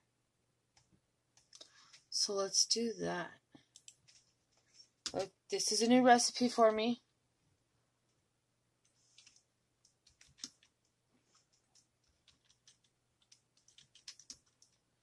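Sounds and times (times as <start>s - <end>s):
typing on computer keyboard: 3.7s - 4.2s, 9.2s - 10.8s, 11.4s - 14.8s.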